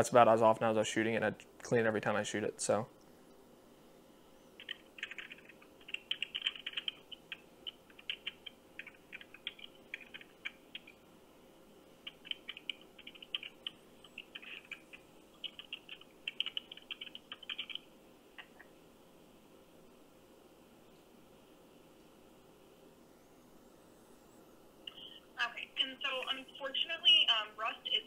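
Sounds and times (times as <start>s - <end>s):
tinny keyboard typing over phone: 4.6s - 11.0s, 12.0s - 17.8s.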